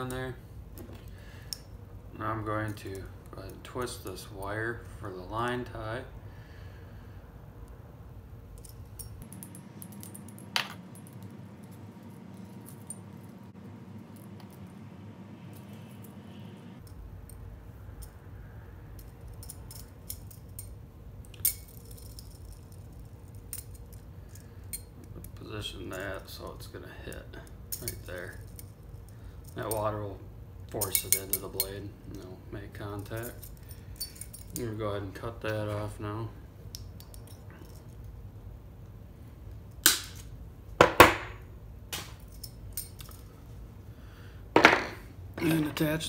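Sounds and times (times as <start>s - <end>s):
small metallic clicks and clinks: 18.9s - 26.0s, 27.1s - 29.9s, 30.7s - 32.2s, 33.0s - 34.7s, 36.7s - 38.2s, 42.2s - 43.3s
wire cutters snapping wire: 39.8s - 40.3s.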